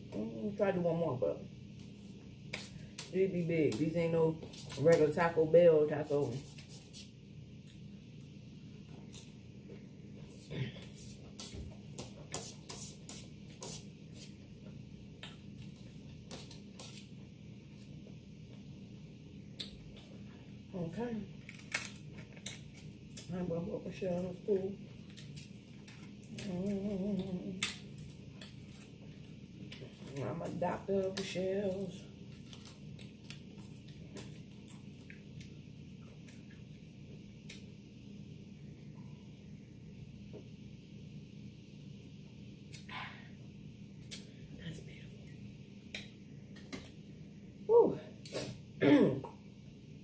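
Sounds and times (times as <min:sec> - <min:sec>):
faint steady hum: 0:00.0 - 0:50.0.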